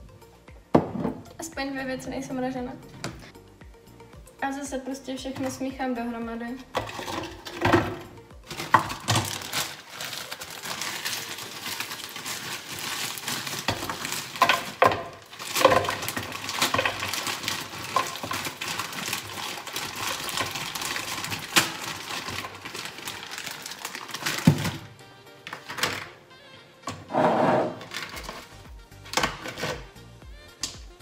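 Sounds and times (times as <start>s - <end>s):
frozen fruit clattering into blender: 6.7s - 26.2s, 27.7s - 29.9s
plastic bags crinkling: 6.8s - 7.8s, 8.5s - 26.2s, 27.7s - 29.9s.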